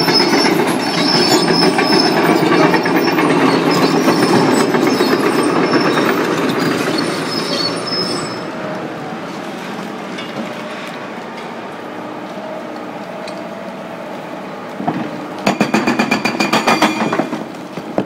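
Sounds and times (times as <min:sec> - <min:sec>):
high squeals: 0:00.0 - 0:08.5.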